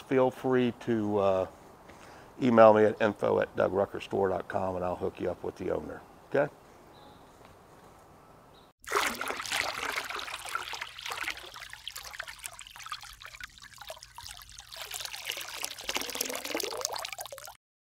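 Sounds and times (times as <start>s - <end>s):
rushing splashing water: 8.8s - 17.6s.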